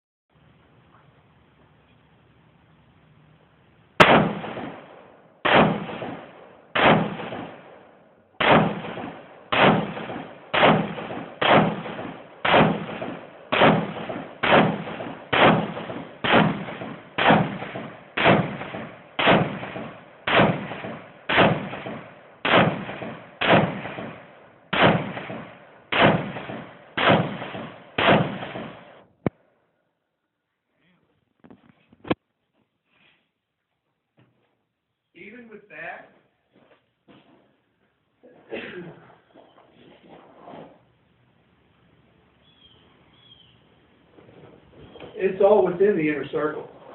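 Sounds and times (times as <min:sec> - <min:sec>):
rifle shots echoing: 0:04.0 - 0:29.0.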